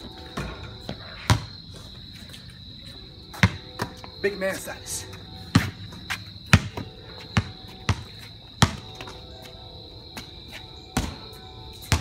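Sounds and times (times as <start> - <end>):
basketball bouncing on concrete: 0.1 - 1.6, 3.3 - 4.2, 5.4 - 9.2, 11.0 - 12.0.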